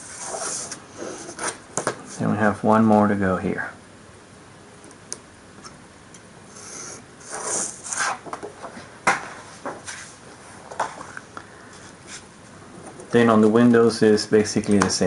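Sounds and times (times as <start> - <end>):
paper rustling and sliding: 0.0 - 2.3, 6.6 - 10.2.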